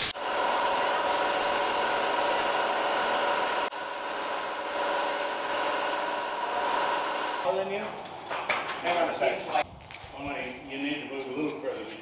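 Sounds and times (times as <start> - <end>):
steady machine hum: 0.2 - 7.4.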